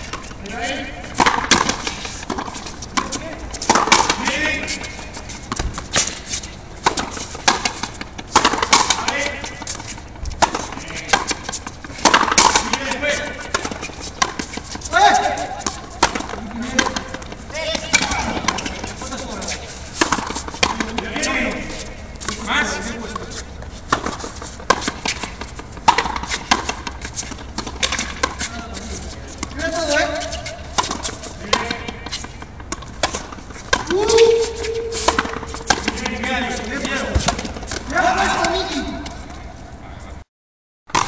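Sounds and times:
racket hitting rubber ball: 0:00.0 - 0:19.4, 0:20.0 - 0:21.7, 0:23.9 - 0:28.8, 0:29.4 - 0:38.6.

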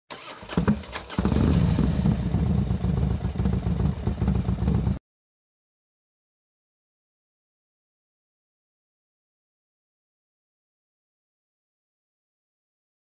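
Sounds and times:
engine running with pulsing rumble: 0:00.2 - 0:05.0.

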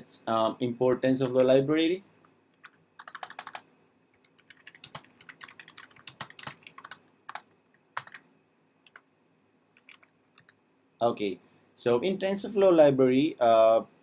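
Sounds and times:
keyboard typing clicks: 0:02.5 - 0:03.6, 0:04.2 - 0:08.2, 0:09.8 - 0:10.6.

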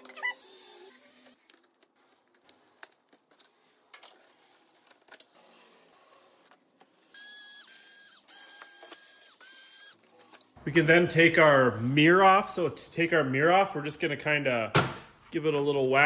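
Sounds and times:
electric screwdriver whirring: 0:07.2 - 0:10.0.

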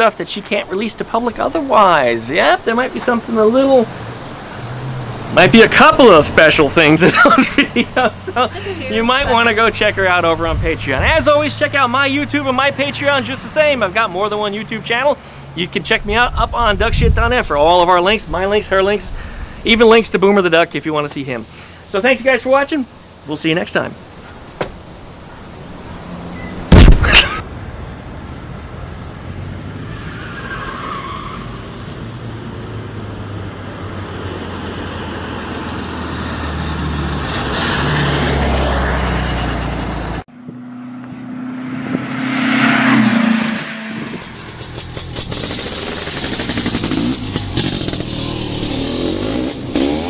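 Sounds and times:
car engine revving: 0:26.0 - 0:50.0
loud bang: 0:26.7 - 0:27.4.

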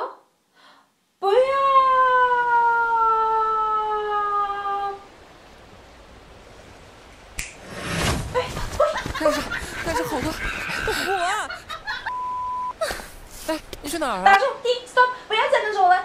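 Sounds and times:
faint hiss: 0:00.0 - 0:16.0
noisy rustling: 0:05.6 - 0:16.0.

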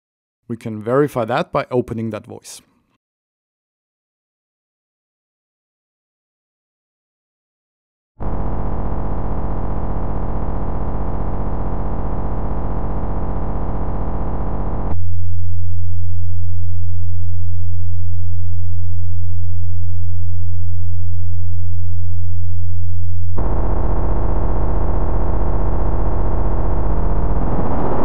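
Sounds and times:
low sine hum: 0:08.2 - 0:28.0
buzzy sawtooth synth drone: 0:23.4 - 0:28.0.

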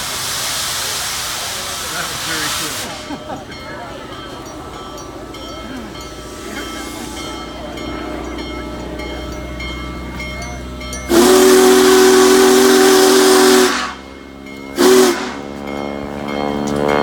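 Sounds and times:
steam hissing: 0:00.0 - 0:03.6, 0:04.5 - 0:15.7
steam locomotive whistle: 0:11.0 - 0:14.1, 0:14.7 - 0:15.6.

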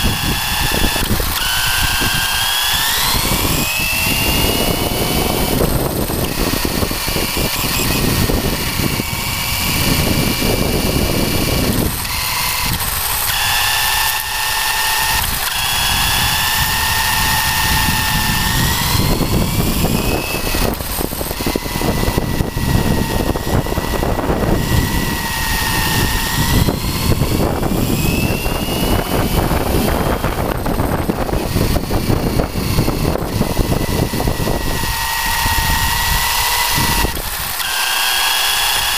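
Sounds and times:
electric motor whining: 0:00.0 - 0:38.9.

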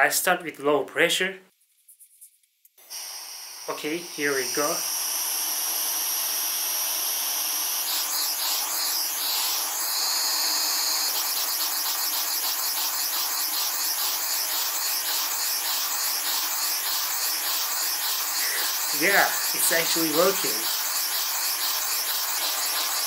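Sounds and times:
compressed air hissing: 0:02.8 - 0:23.0.

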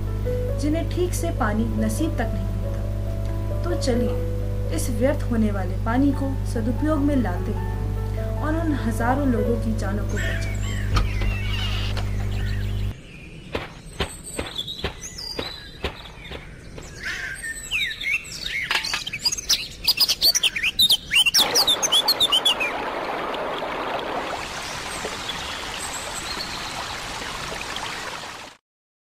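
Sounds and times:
birds chirping: 0:09.2 - 0:27.3.

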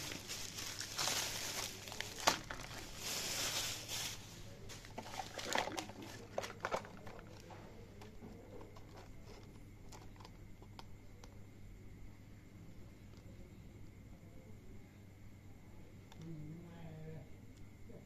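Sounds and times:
plastic packaging rustling: 0:00.0 - 0:10.4
low steady hum: 0:00.0 - 0:18.0.

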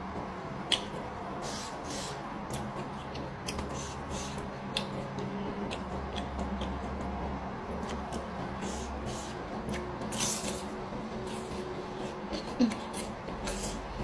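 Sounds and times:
low steady hum: 0:00.0 - 0:14.0
wet mouth clicks and smacks: 0:00.7 - 0:01.0.

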